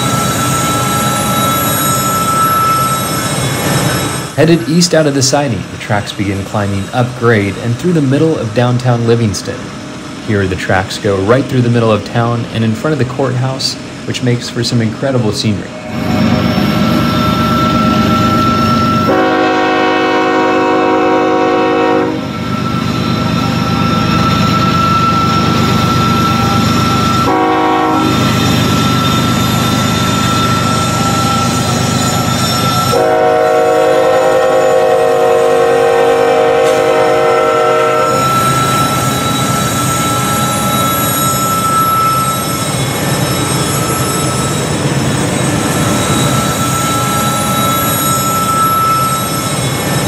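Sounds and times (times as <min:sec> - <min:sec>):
locomotive horn blasts: 0:18.8 - 0:22.4, 0:27.2 - 0:28.4, 0:32.7 - 0:42.4.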